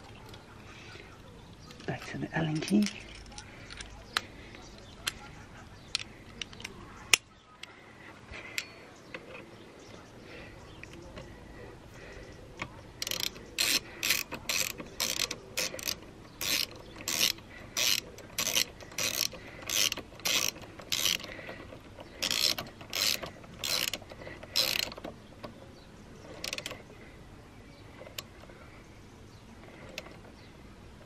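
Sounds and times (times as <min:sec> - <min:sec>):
socket ratchet clicking: 0:13.0 - 0:21.4, 0:22.2 - 0:25.1, 0:26.4 - 0:26.8.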